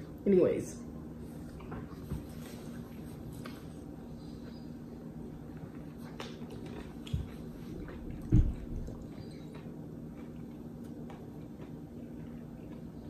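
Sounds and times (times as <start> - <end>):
low room hum: 0.0 - 13.0
person chewing: 5.5 - 13.0.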